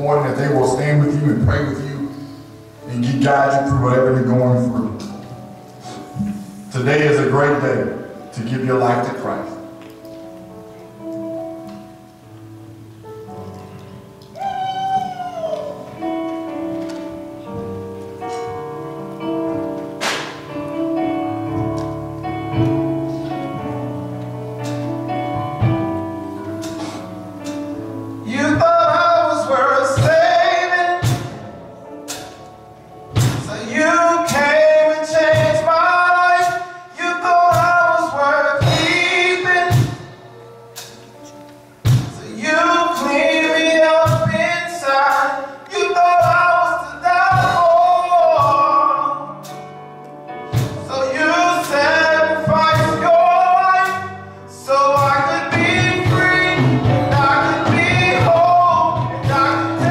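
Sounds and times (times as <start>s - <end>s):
keyboard gospel chords: 0.0s - 59.9s
man singing into a microphone: 28.2s - 31.3s, 33.4s - 40.2s, 42.1s - 49.4s, 50.8s - 59.9s.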